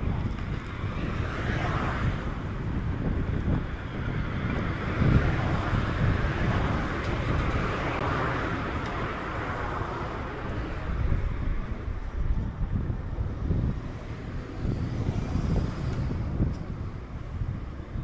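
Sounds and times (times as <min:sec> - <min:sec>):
car tyres passing on road: 0:00.0 - 0:18.0
wind rumble on microphone: 0:00.0 - 0:18.0.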